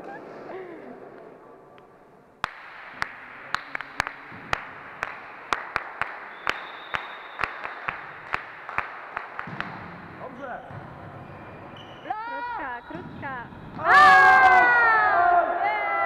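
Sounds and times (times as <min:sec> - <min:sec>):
loud single claps: 0:02.4 - 0:10.2
many hands clapping: 0:02.4 - 0:10.2.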